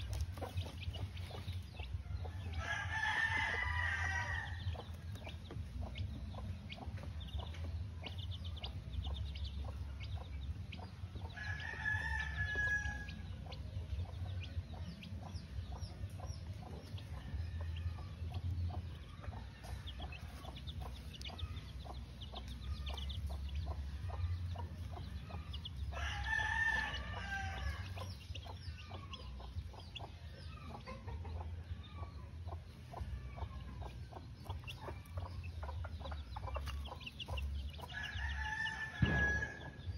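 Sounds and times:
hen clucking: 0.0s - 39.8s
chicks peeping: 0.0s - 39.9s
rooster crowing: 2.6s - 4.6s, 11.4s - 13.2s, 26.0s - 27.9s, 37.9s - 39.8s.

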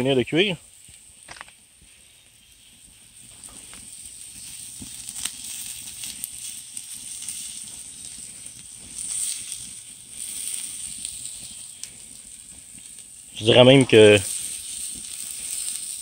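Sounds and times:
wood fire crackling and hissing: 0.0s - 16.0s
sharp pops: 0.8s - 1.9s.

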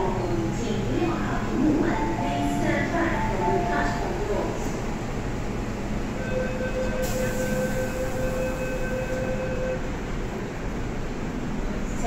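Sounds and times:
hum of train and station: 0.0s - 12.0s.

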